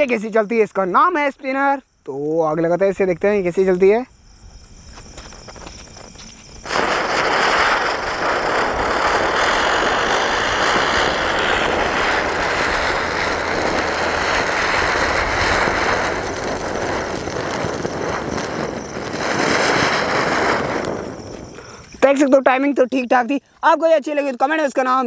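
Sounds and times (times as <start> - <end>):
spinning firework hissing: 4.1 - 22.2.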